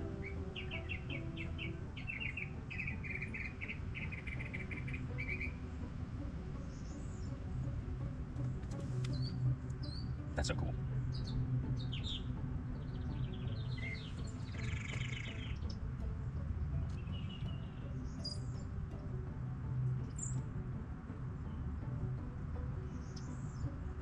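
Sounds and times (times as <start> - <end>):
bird trill: 0.0 - 5.6, 11.1 - 15.8, 16.9 - 18.7, 20.0 - 20.4, 22.9 - 23.7
songbirds chirping: 0.0 - 24.0.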